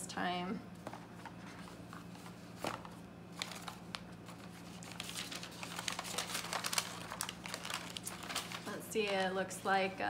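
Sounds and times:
tissue paper crinkling: 1.5s - 9.4s.

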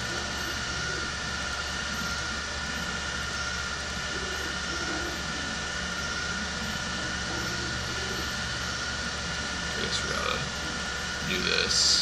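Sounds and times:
background hum and hiss: 0.0s - 12.0s
faint high whine: 0.0s - 12.0s.

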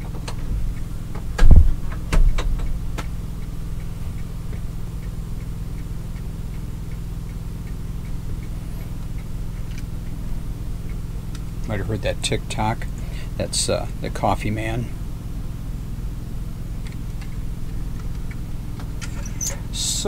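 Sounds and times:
novelty figure tick-tock: 3.3s - 10.2s, 10.8s - 11.7s.

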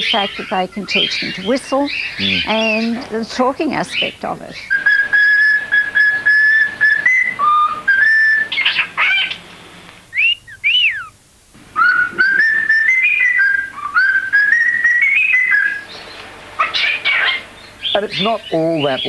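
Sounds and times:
cockatiel sharp calls: 3.9s - 9.5s, 10.1s - 11.2s, 11.8s - 18.0s
cockatiel whistling a tune: 4.7s - 9.4s, 10.1s - 11.2s, 11.8s - 18.0s.

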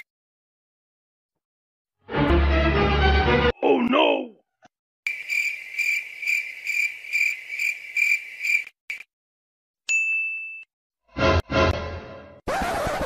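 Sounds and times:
cricket chirping: 5.1s - 9.1s
bell ding: 9.9s - 10.7s.

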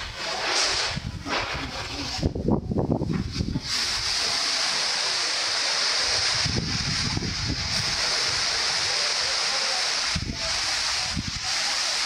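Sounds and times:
wind buffeting microphone: 0.0s - 4.1s, 6.1s - 8.8s
wind through tree leaves: 0.0s - 12.0s.

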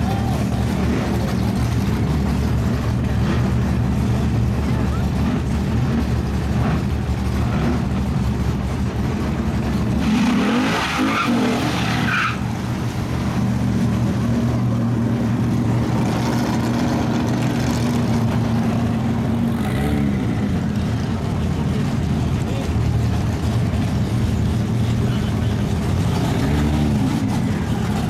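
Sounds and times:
race car engines droning: 0.0s - 28.0s
tires squealing: 9.7s - 14.8s.

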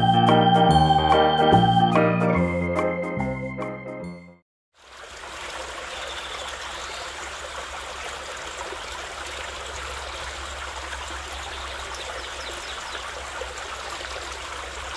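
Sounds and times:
running water rushing: 4.7s - 14.9s.

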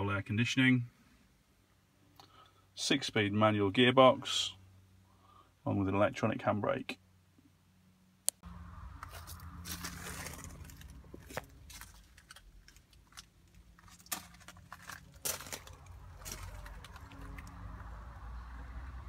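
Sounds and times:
phone handling rumble and rustling: 9.0s - 17.6s.

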